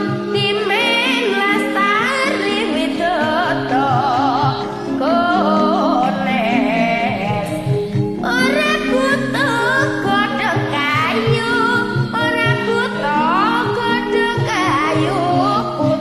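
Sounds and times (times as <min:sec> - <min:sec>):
girl singing: 0:00.0 - 0:16.0
karaoke backing track: 0:00.0 - 0:16.0.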